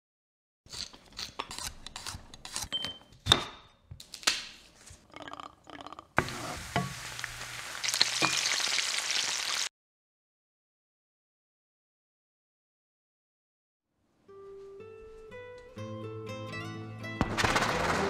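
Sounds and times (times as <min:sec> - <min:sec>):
shrimp sizzling in oil: 0:06.2 - 0:09.7.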